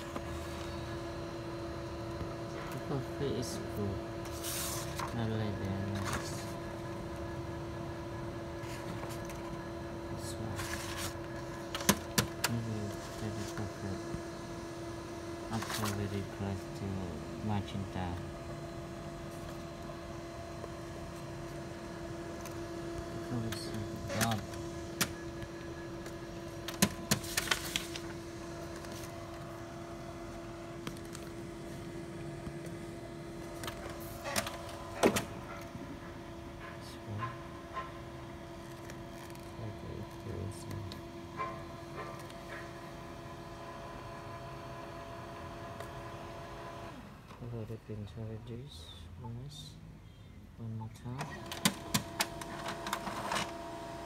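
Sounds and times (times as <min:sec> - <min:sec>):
paper sheets rustling: 0:04.2 - 0:06.6, 0:08.6 - 0:09.6, 0:10.4 - 0:13.8, 0:15.5 - 0:16.2, 0:26.5 - 0:29.8, 0:30.8 - 0:31.9.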